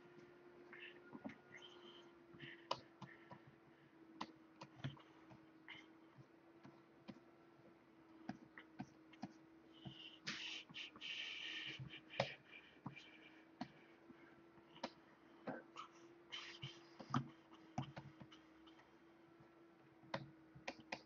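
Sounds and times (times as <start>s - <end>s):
faint hum: 0.0s - 21.0s
short hiss: 10.2s - 11.8s.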